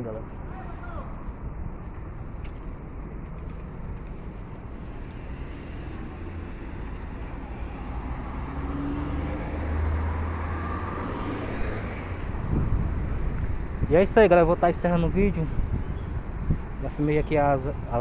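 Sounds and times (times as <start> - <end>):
street traffic hum: 0.0 - 18.0
vehicle engine approaching: 1.2 - 17.1.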